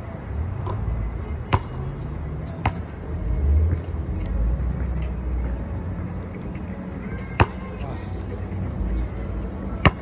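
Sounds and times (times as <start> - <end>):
basketball bouncing on court: 1.5 - 1.8, 2.6 - 2.9, 7.4 - 7.6.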